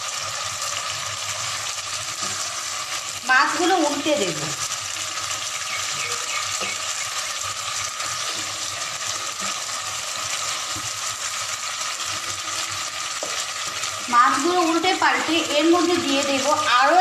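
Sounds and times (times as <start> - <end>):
fish and potato sizzling in oil: 0.0 - 17.0
spatula scraping and knocking pot: 13.2 - 13.9.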